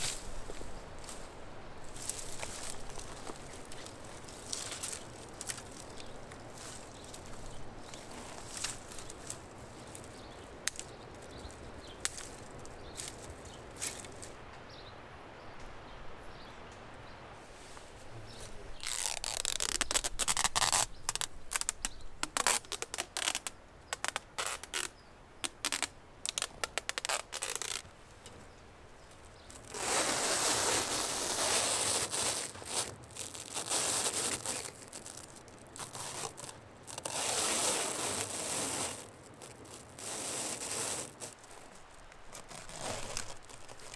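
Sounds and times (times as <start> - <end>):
stretch wrap crackling: 0.0 - 14.4, 18.8 - 28.0, 29.5 - 43.9
faint outdoor background: 0.0 - 43.9
adhesive tape ripping off roll: 18.8 - 27.8, 29.7 - 43.9.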